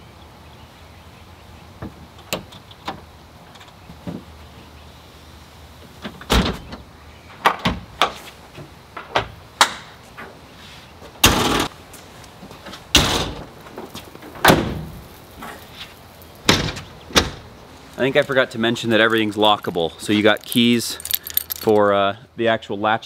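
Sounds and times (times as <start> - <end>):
camper roof knocks and clunks: 12.9 - 15.0.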